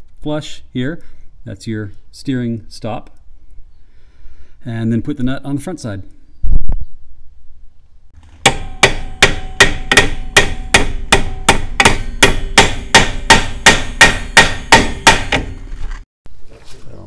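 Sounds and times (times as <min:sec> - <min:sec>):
hammer blows on metal: 0:08.4 - 0:15.6.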